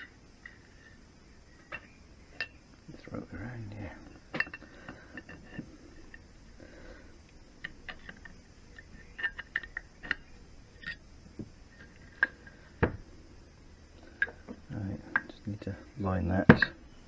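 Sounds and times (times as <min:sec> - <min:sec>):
metal parts clicking and tapping: 0:04.0 - 0:06.2, 0:07.6 - 0:11.0, 0:14.0 - 0:15.4, 0:16.5 - 0:16.8.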